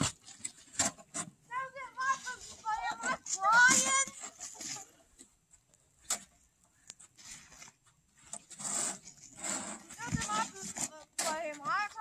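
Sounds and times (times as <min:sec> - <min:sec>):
scraping on snow: 0:01.6 - 0:05.0, 0:07.0 - 0:12.0.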